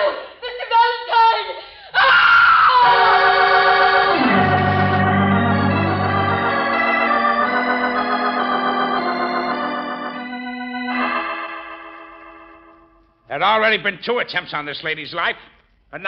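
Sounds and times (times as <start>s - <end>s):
organ chords: 2.8s - 13.3s.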